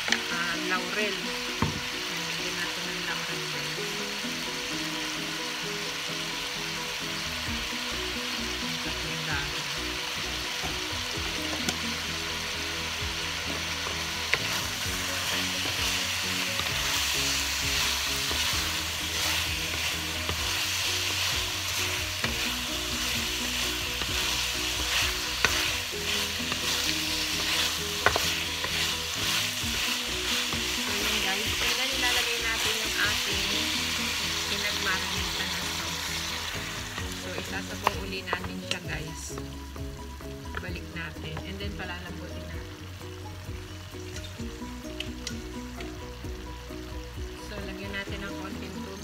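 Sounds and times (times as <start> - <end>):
meat sizzling in frying pan: 0.0 - 49.0
wooden spatula scraping: 13.5 - 39.4.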